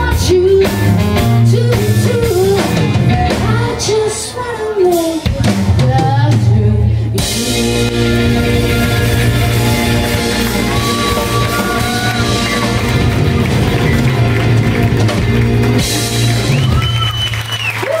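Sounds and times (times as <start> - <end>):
woman singing: 0.0 - 8.3
electric guitars: 0.0 - 17.8
drum kit: 0.0 - 18.0.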